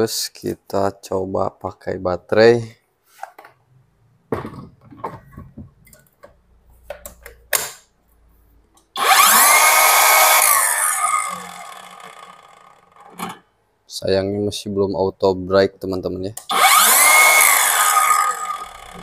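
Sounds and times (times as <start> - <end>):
circular saw motor whining: 9.0 - 13.1, 16.5 - 19.0.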